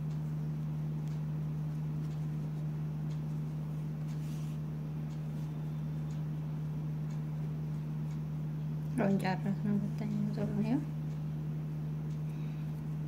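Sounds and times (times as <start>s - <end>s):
steady low hum: 0.0s - 13.0s
knitting needles ticking: 0.1s - 4.4s.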